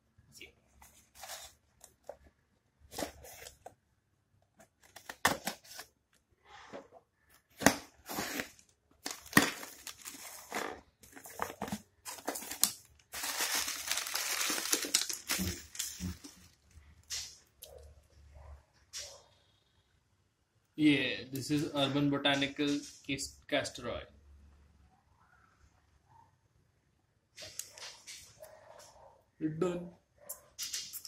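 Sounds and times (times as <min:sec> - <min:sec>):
plastic wrapping crinkling: 0:07.5 - 0:16.8.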